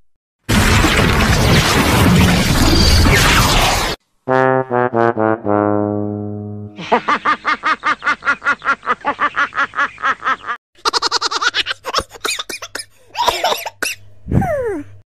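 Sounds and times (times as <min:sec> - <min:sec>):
man cackling rhythmically: 0:06.7 - 0:13.8
giggling laughter: 0:06.8 - 0:12.2.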